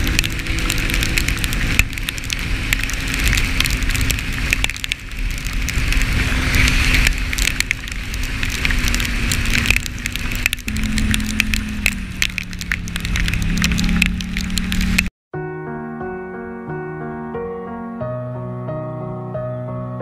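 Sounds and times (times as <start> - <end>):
quad bike engine running: 0.0 - 4.7
raindrops ticking on camera: 0.0 - 15.1
tyre noise on wet road: 0.0 - 15.1.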